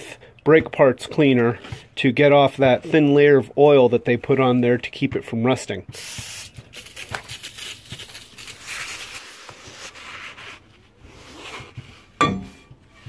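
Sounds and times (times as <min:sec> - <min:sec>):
spray can hiss: 0:05.9 - 0:09.4
metal knock: 0:12.2 - 0:12.8.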